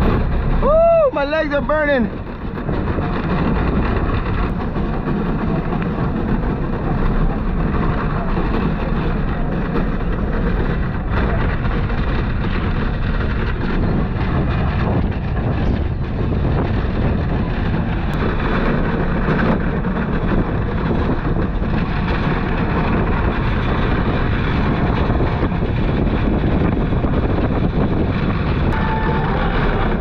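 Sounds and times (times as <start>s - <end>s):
rail bike rumbling on track: 0.0s - 30.0s
wind buffeting microphone: 0.0s - 30.0s
brief high tone: 28.8s - 29.9s.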